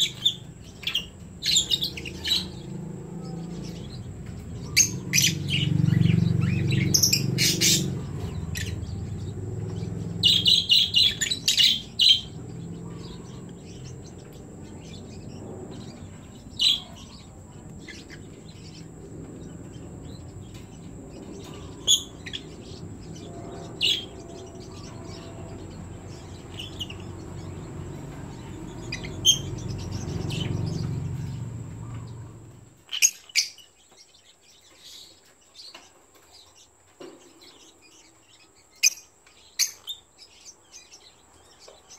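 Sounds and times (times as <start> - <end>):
low steady rumble: 0.0 - 32.8
lovebirds chirping: 0.0 - 41.9.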